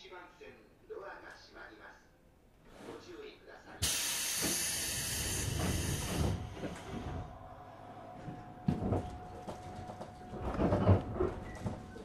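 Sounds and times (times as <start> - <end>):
hiss of train doors: 3.8 - 7.3.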